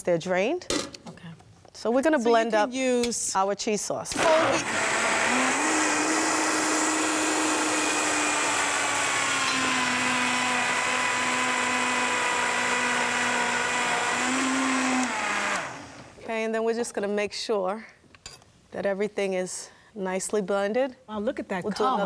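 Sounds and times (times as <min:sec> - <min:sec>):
blender running: 0:04.1 - 0:16.2.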